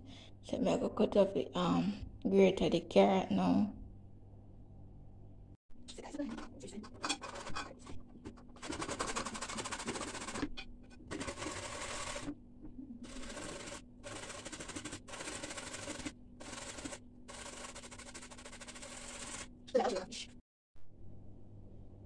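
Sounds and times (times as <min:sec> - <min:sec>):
carrot grating on metal grater: 0:06.0 - 0:08.0, 0:08.6 - 0:12.3, 0:13.0 - 0:19.5.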